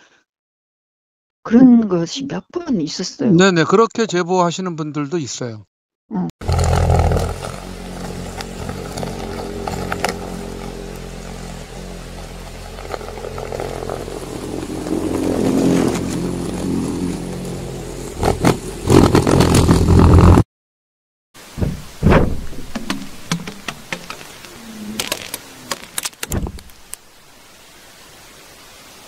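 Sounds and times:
knocks: 21.6 - 24.1.

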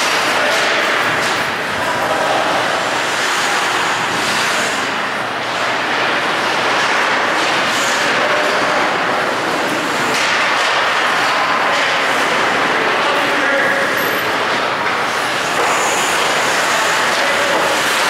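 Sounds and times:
ice rink hiss: 2.1 - 5.0, 15.2 - 18.0.

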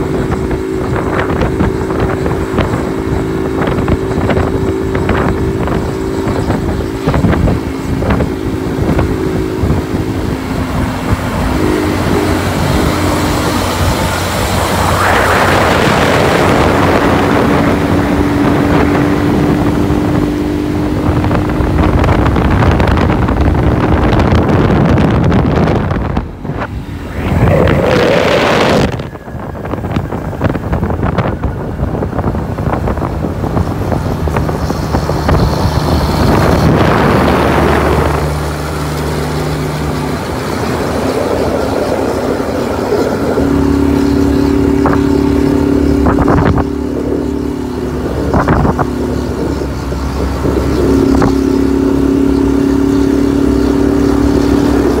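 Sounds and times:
diesel truck running: 0.0 - 55.0
wind and tyre rush: 0.0 - 55.0
truck horn two-note blast: 11.5 - 12.9.

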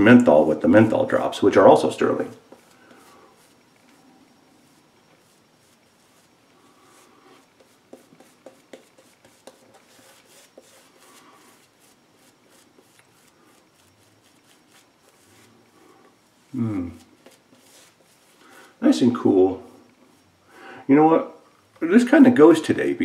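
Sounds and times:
shaving brush lathering: 1.0 - 19.4.

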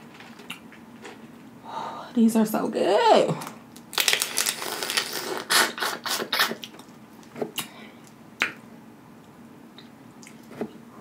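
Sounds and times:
shell crackles: 3.8 - 5.2
wet mouth smacks: 8.4 - 8.6.

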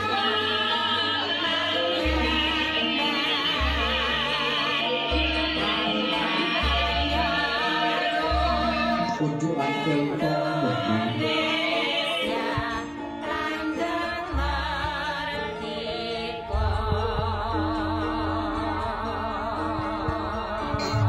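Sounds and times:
person singing long wavering notes: 0.0 - 21.0
deep bass: 16.5 - 21.0.

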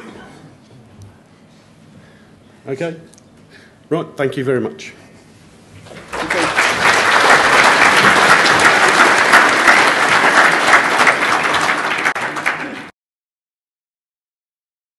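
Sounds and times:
audience applauding: 5.8 - 12.9.

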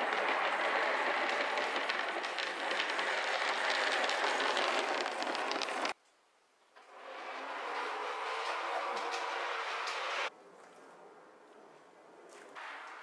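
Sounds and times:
model tram rolling on track: 0.0 - 6.0, 6.8 - 10.3
wheels clicking over rail joints: 0.0 - 6.0, 6.7 - 10.3.

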